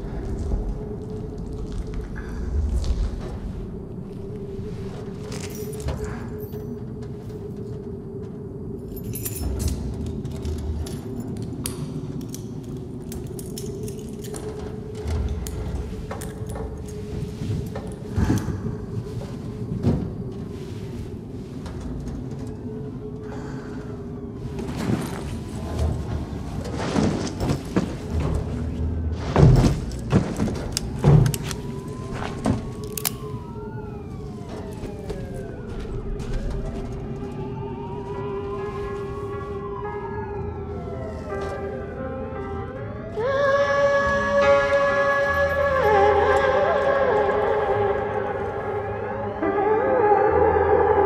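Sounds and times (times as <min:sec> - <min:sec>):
low hum: 0:00.0 - 0:51.0
sirens wailing: 0:03.7 - 0:51.0
metallic clinks and rattles: 0:08.8 - 0:18.5.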